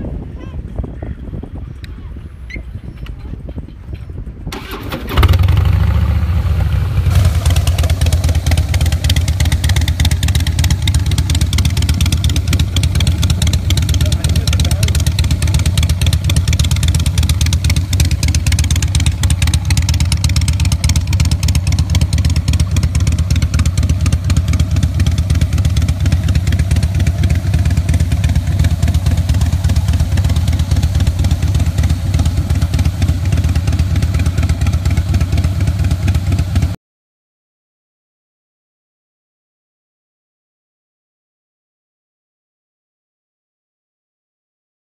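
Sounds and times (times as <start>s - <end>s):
motorcycle engine idling: 4.6s - 36.8s.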